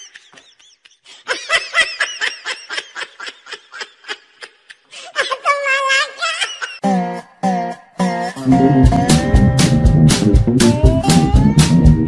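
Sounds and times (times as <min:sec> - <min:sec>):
person laughing: 0:00.0 - 0:06.9.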